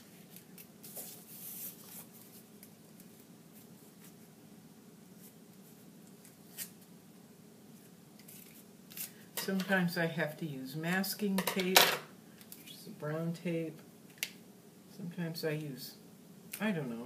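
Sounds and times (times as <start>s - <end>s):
paper rustling: 0.0s - 4.3s
low steady hum: 0.0s - 17.0s.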